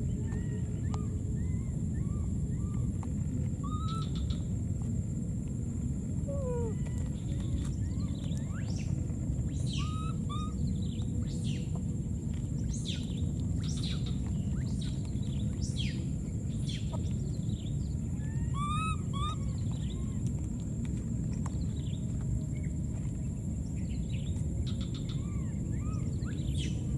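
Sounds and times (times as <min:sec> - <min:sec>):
steady low outdoor noise: 0:00.0 - 0:26.9
constant high-pitched tone: 0:06.1 - 0:10.9
squeaky bird calls: 0:18.3 - 0:19.6.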